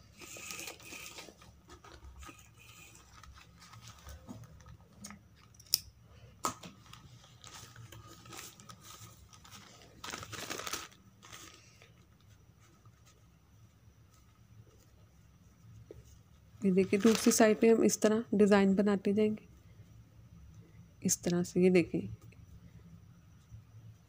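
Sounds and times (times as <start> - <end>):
paper crinkling: 0.1 - 5.1, 6.8 - 13.2, 16.6 - 17.6
fabric rustling: 14.0 - 17.7.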